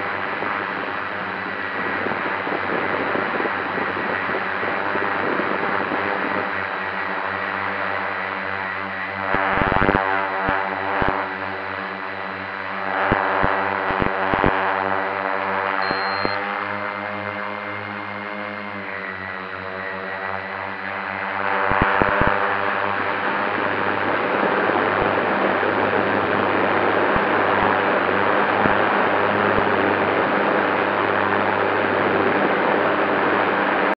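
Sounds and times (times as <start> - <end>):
drone motors whining: 15.8 - 16.4.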